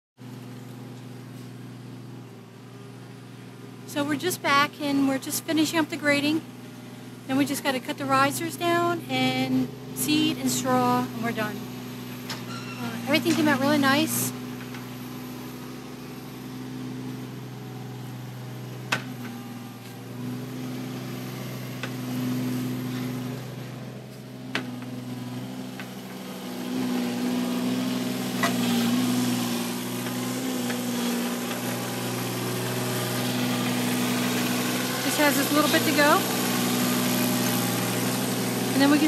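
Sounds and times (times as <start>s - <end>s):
excavator diesel engine running: 0.2s - 39.0s.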